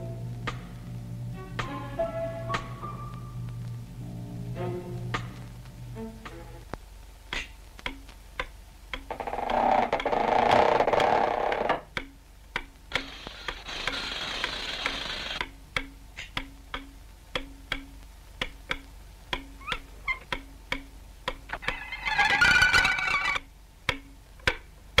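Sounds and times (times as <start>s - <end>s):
sharp clicks with low notes: 0.0s - 21.8s, 22.8s - 25.0s
hiss: 12.9s - 15.4s
short squeaks: 21.6s - 23.4s.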